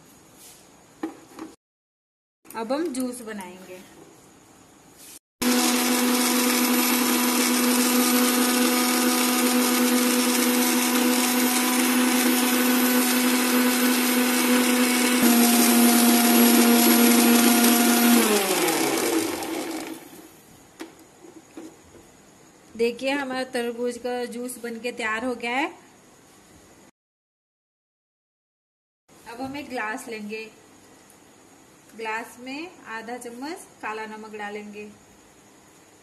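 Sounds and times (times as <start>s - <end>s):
mixer grinder motor whining: 5.4s - 20.3s.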